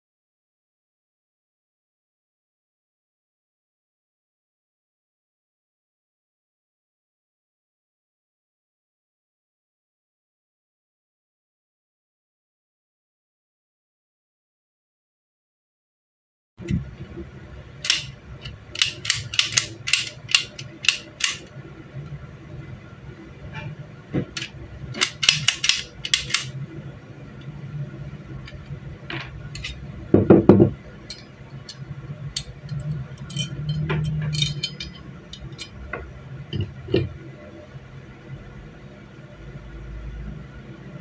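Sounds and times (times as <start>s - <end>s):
low hum: 16.6s - 41.0s
metal tools clinking: 29.6s - 29.8s, 31.1s - 31.8s, 32.4s - 35.8s
dull knock: 30.2s - 30.8s.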